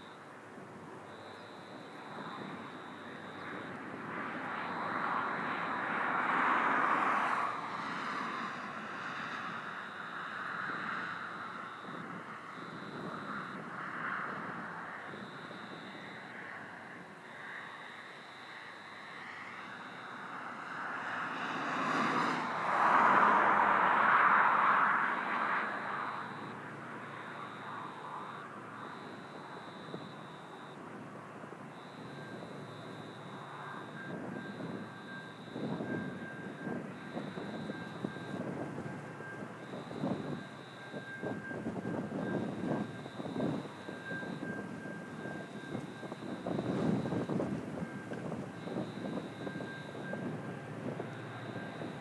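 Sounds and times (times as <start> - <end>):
distant diesel locomotive drone: 0.0 - 52.0
vehicle rushing noise: 19.1 - 30.0.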